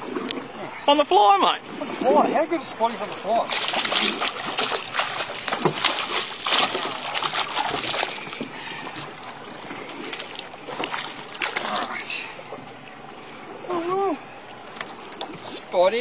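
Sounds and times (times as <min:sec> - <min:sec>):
water sloshing: 0:00.0 - 0:16.0
fish thrashing and splashing: 0:03.3 - 0:12.3.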